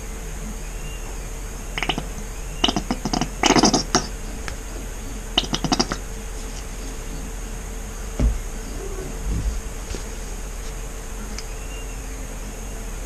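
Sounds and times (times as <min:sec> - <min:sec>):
paint sputtering from bottle: 0:01.8 - 0:04.4, 0:05.3 - 0:06.8.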